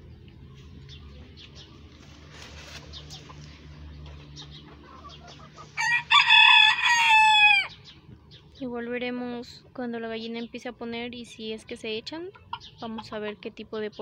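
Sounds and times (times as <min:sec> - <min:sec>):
rooster crowing: 0:05.8 - 0:07.8.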